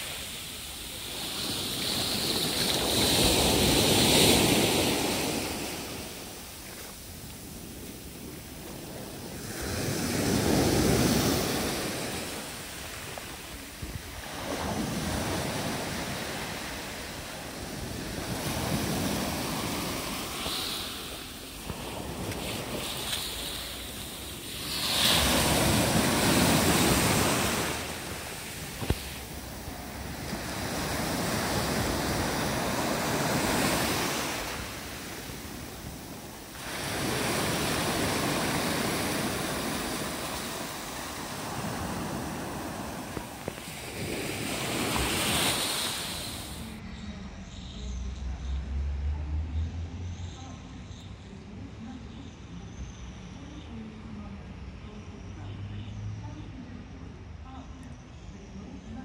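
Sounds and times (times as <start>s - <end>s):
surf washing up pebble beach: 0.0s - 46.8s.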